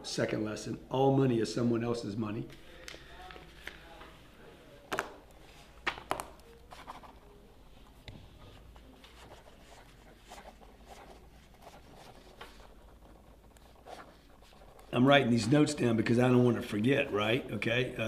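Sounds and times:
pen scratching on paper: 6.4 - 15.0.

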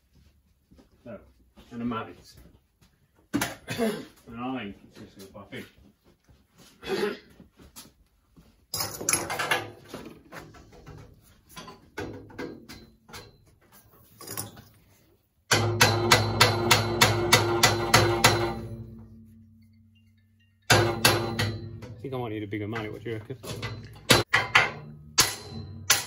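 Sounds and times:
metal parts clinking: 14.1 - 14.9
mallet striking metal tool: 15.5 - 19.4, 20.7 - 22.0, 23.5 - 26.0
steel tube ringing hum: 15.5 - 22.1, 23.6 - 26.0.

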